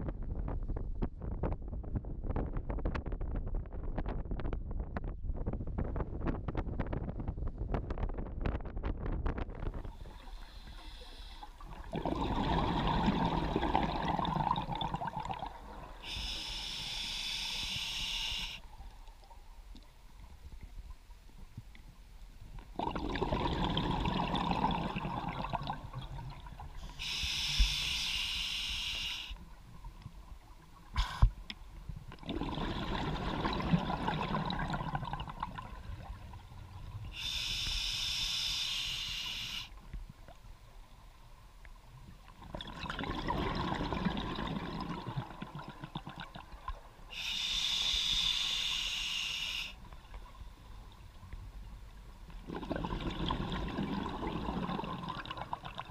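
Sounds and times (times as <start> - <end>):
diver breathing through regulator: 9.8 - 11.6, 16.0 - 18.6, 26.8 - 29.4, 37.1 - 39.8, 47.1 - 49.8.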